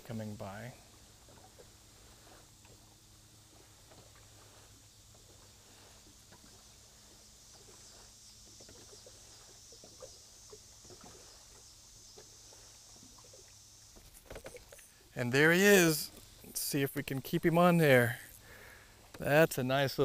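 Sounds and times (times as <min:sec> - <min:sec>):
waves lapping against boat hull: 0:00.0 - 0:15.4
faint steady hiss: 0:00.0 - 0:20.0.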